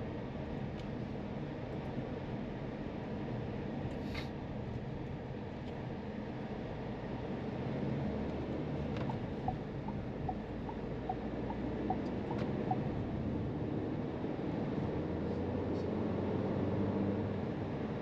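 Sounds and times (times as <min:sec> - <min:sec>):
short electronic beeps: 0:09.4 - 0:12.9.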